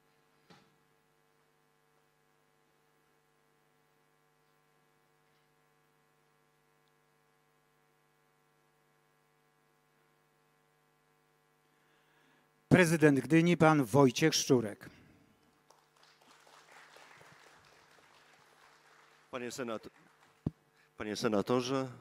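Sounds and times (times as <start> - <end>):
faint electrical hum: 0.0 - 22.0.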